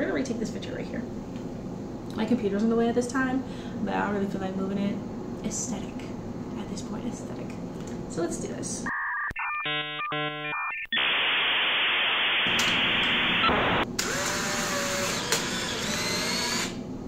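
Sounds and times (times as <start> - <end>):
stepped electronic beeping tones: 8.9 - 13.8
static hiss: 10.9 - 13.8.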